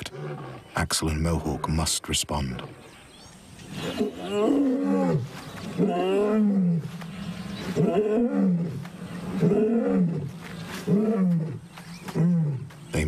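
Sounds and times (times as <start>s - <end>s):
lion roaring: 3.6s - 12.7s.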